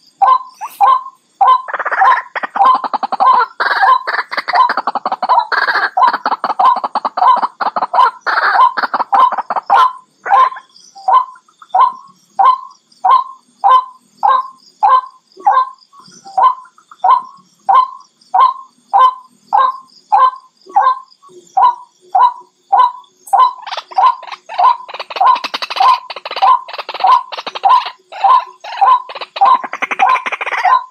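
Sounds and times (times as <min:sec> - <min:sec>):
waterhen calling: 0:21.7 - 0:30.9.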